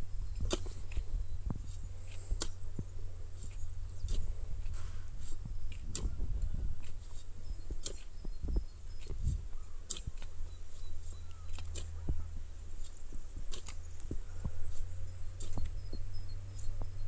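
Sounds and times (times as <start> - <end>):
low rumble on microphone: 0.0 - 17.0
hoes chopping into soil: 0.3 - 17.0.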